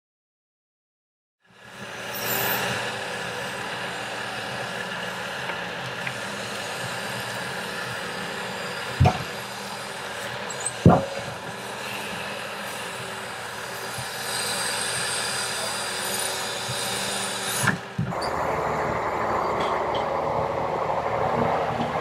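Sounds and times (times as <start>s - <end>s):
diesel machine running: 1.6s - 22.0s
heavy knocks: 9.0s - 9.3s.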